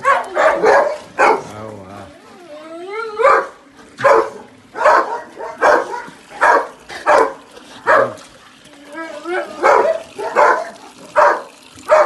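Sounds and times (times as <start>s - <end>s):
dog barking: 0.0s - 1.5s, 3.2s - 8.2s, 9.3s - 12.0s
dog whining: 2.2s - 3.4s.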